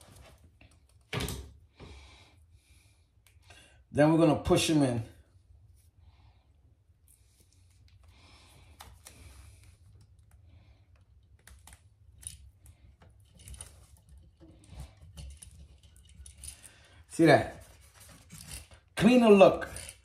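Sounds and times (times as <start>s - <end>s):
rustling of insulated wires: 7.0s - 20.0s.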